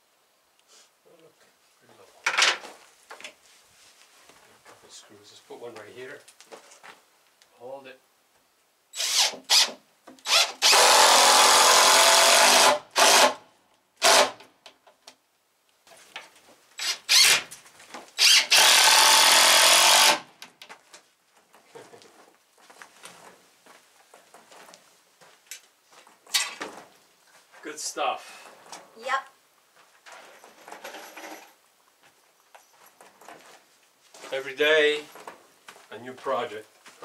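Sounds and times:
cordless drill driving screws: 9.0 - 13.4, 14.0 - 14.4, 16.8 - 17.4, 18.2 - 20.3.

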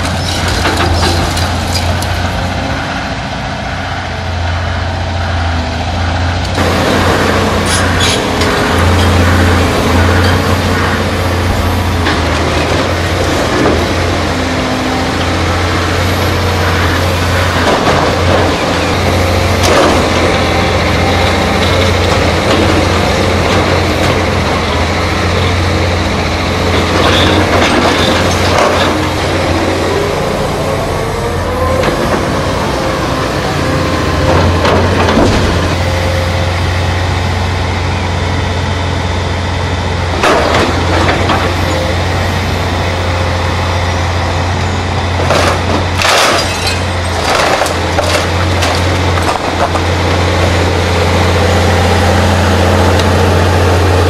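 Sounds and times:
excavator diesel engine humming: 0.0 - 54.0
grapple crunching debris: 45.2 - 50.6.

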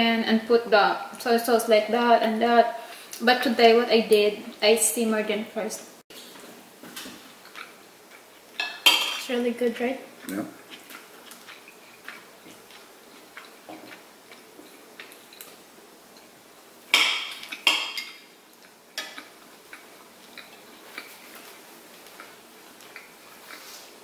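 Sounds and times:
cutlery clinking on plates: 8.6 - 9.3.

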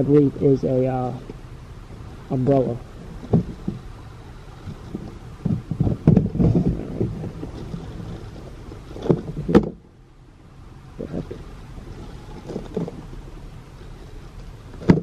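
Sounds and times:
plastic knocks: 3.2 - 3.8, 4.7 - 7.6, 9.0 - 9.8, 14.8 - 15.0.

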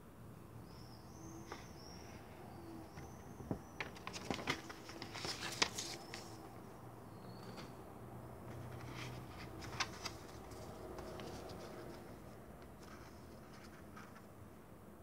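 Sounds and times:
paper leaflet rustling: 3.8 - 6.4, 8.5 - 14.3.

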